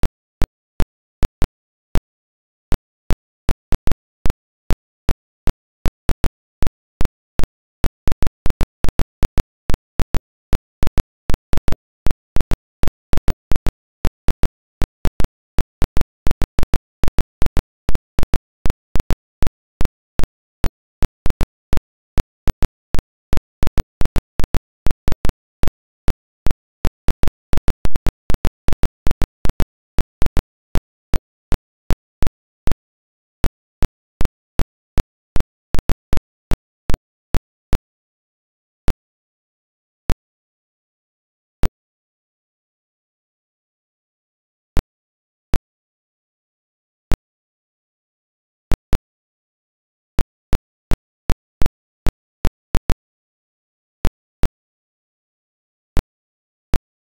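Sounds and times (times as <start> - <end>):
sharp clicks and pops: 0.0 - 37.8, 48.6 - 49.0, 50.1 - 53.1.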